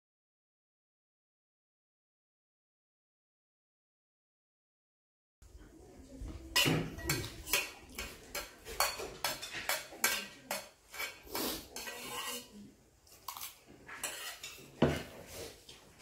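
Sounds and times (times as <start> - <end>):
metal spoon scraping metal bowl: 6.6 - 15.6.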